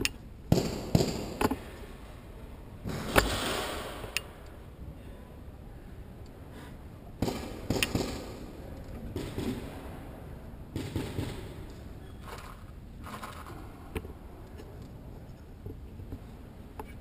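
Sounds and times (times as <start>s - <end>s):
paintball shots popping: 7.2s - 8.4s, 9.1s - 9.8s, 10.8s - 11.7s.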